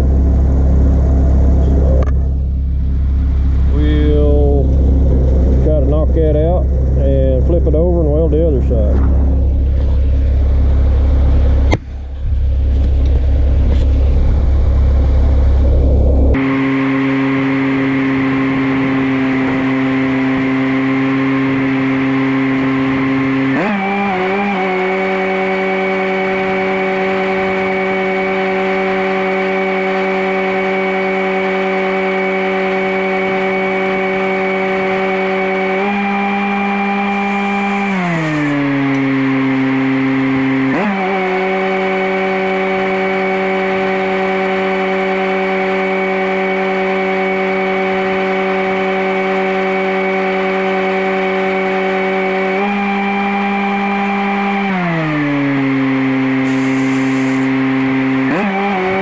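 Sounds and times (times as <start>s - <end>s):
engine running: 0.0s - 59.0s
stick welding: 56.5s - 57.5s.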